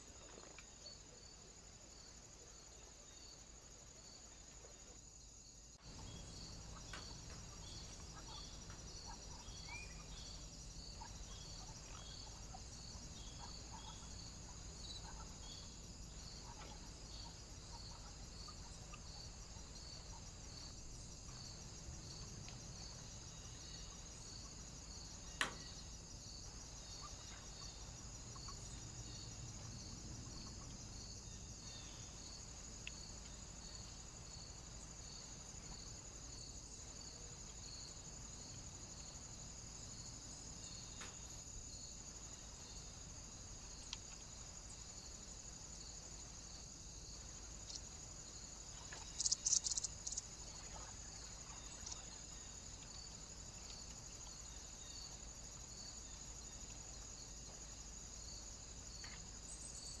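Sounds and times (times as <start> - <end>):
faint ticks: 6.7 - 8.9, 21.2 - 22.8, 30.4 - 31.0, 32.8 - 33.4, 40.9 - 41.4, 43.6 - 44.4, 48.7 - 50.9, 51.7 - 54.5.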